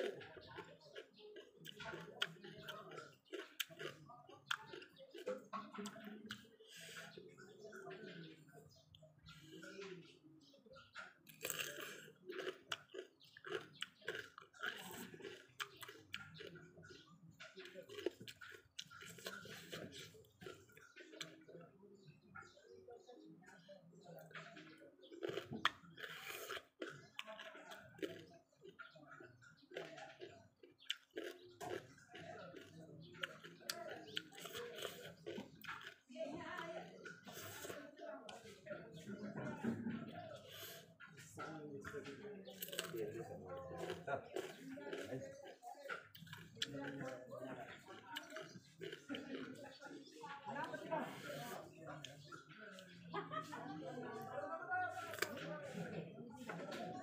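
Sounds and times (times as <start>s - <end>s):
person chewing crunchy cucumber: 0.0s - 7.5s, 11.2s - 21.5s, 24.2s - 38.5s, 42.5s - 52.9s, 55.0s - 55.4s
wet mouth clicks: 43.8s - 50.1s.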